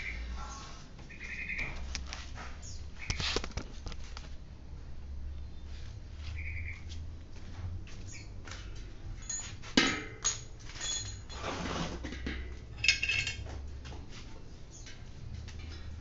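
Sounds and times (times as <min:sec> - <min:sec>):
metal tools clinking and knocking: 0:08.7 - 0:13.7.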